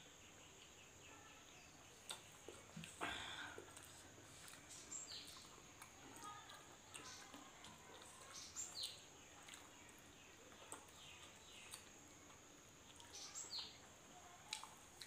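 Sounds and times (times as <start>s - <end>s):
faint bird chirps: 0.0s - 3.8s, 4.6s - 14.8s
soft eating clicks: 3.6s - 13.6s, 14.4s - 15.0s.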